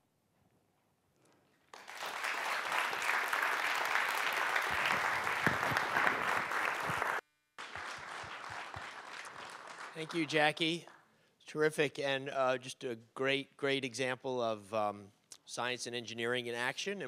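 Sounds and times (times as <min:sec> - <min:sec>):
audience applause: 0:01.7 - 0:11.0.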